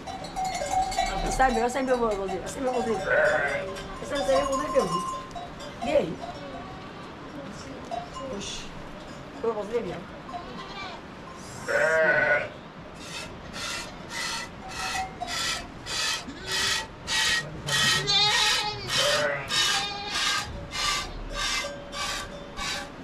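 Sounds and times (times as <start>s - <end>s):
goat bleating: 3.0s - 4.2s, 6.4s - 7.2s, 10.3s - 23.0s.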